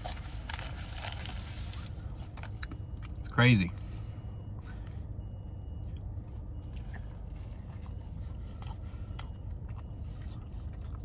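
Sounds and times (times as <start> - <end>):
packet clicks and rustles: 0.0 - 3.2
low rumble inside car: 0.0 - 11.0.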